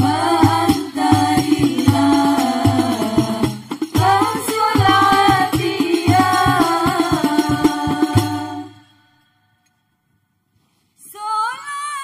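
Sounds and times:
frame drums struck: 0.0 - 8.8
women singing in unison: 0.0 - 9.2.

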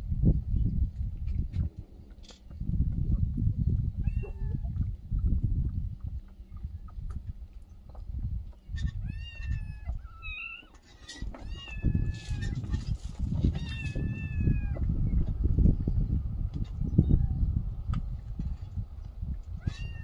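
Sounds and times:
kittens meowing: 4.0 - 4.8, 8.8 - 10.7, 11.4 - 12.8, 13.5 - 14.8, 19.6 - 20.0
low rumbling noise: 11.9 - 19.7.

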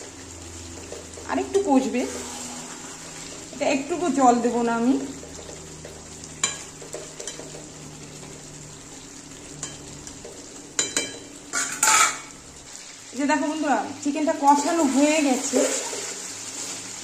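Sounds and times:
food sizzling in a pan: 0.0 - 17.0
metal spatula scraping pan: 0.8 - 3.6, 10.8 - 12.4, 14.5 - 16.8.

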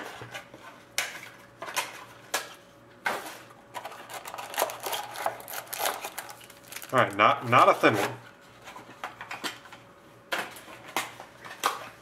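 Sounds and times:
wrapper rustling: 3.8 - 7.3.

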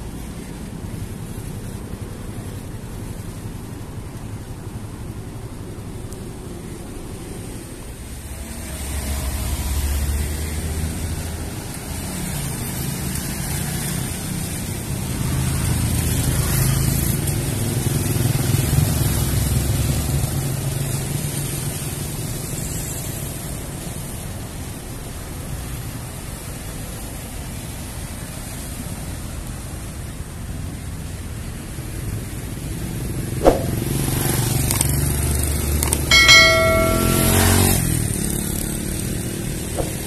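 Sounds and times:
cars driving past: 7.2 - 21.6, 32.7 - 40.0.

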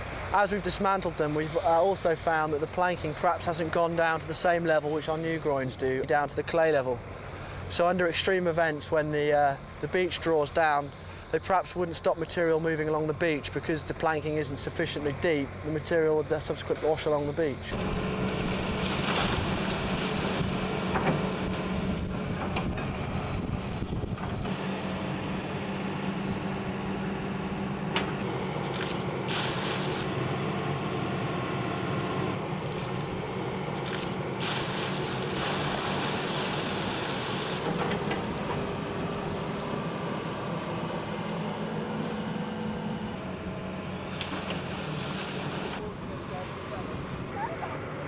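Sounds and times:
diesel engine running: 0.0 - 48.0
water and wet sand pouring: 17.7 - 22.0, 28.6 - 30.1, 32.6 - 37.8, 44.1 - 45.8.

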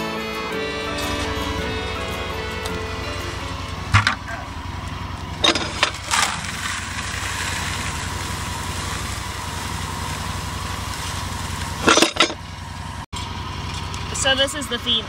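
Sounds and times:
engine running: 0.0 - 15.0
sharp knocks: 3.9 - 4.2.

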